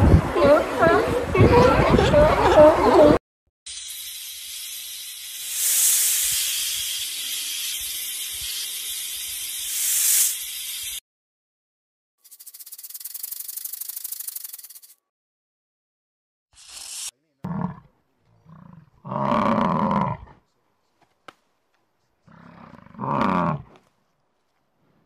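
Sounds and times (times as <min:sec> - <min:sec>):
snake hissing: 0:03.7 - 0:11.0, 0:12.3 - 0:14.8
rapid rattling buzz: 0:12.2 - 0:14.9.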